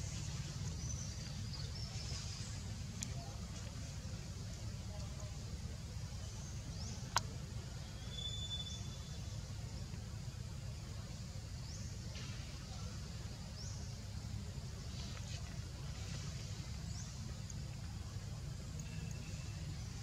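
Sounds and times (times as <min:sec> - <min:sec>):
steady low rumble: 0:00.0 - 0:20.0
faint high chirps: 0:06.3 - 0:09.4, 0:18.6 - 0:20.0.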